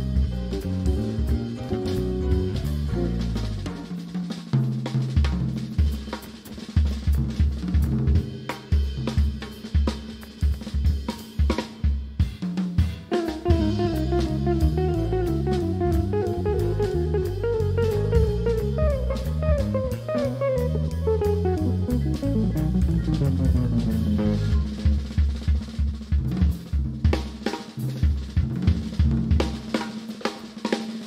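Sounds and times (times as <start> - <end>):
electric bass: 0.0 - 3.9, 13.2 - 27.1
drum fills: 0.0 - 31.0
electric guitar melodic line: 13.0 - 25.3.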